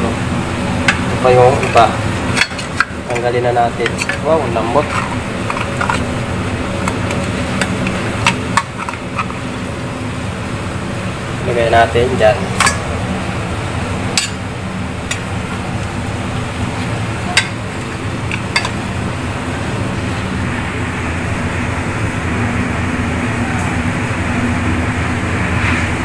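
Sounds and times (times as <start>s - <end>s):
low mechanical hum: 0.0s - 26.0s
ladle clinking on metal cookware: 0.9s - 6.1s, 17.3s - 18.9s.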